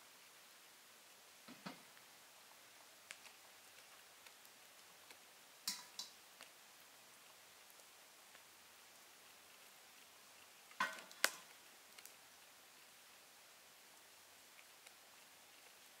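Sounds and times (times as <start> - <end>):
light clicks and taps: 5.7 - 6.5.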